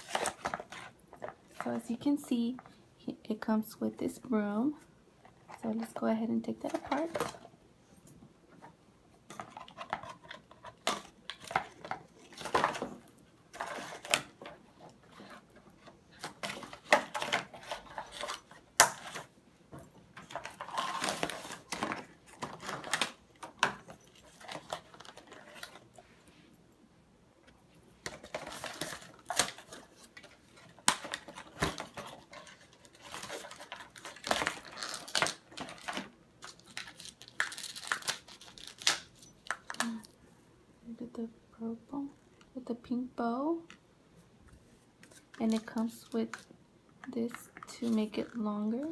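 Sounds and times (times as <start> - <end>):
packaging rustling and crinkling: 0.0 - 2.0, 9.3 - 19.3, 20.1 - 26.0, 28.0 - 40.1.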